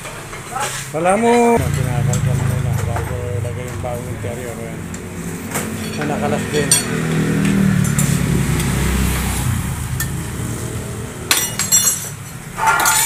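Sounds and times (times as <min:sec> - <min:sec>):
engine rumbling: 0:01.4 - 0:13.0
metal tyre tools clinking: 0:04.9 - 0:08.9, 0:11.3 - 0:13.0.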